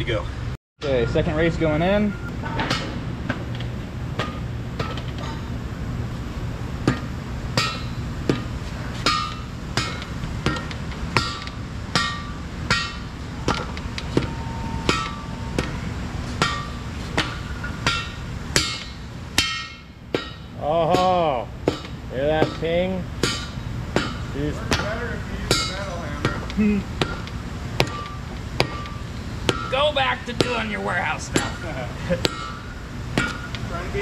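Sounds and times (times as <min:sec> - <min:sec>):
hammer striking metal: 0:06.8 - 0:30.7, 0:31.4 - 0:34.0.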